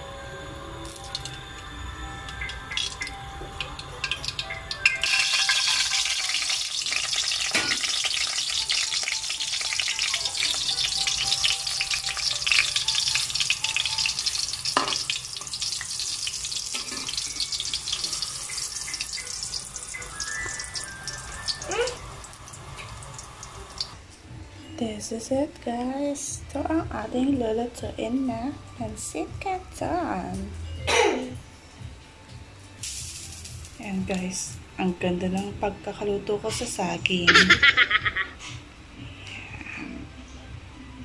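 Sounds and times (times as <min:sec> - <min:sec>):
bananas frying in hot oil: 0:02.2 - 0:24.0.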